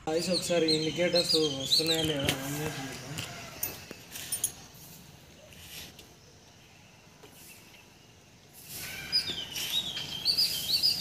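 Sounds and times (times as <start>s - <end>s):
bird chirping: 0.0s - 11.0s.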